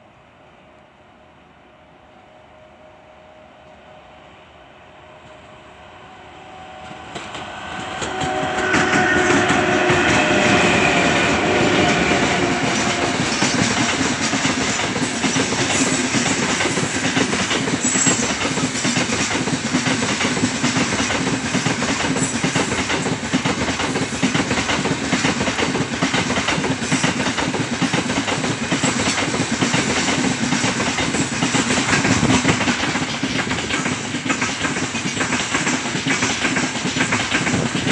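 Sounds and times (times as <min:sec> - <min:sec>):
freight train wheels rumbling: 0:03.3 - 0:37.9
wheels clickety-clack: 0:11.7 - 0:37.9.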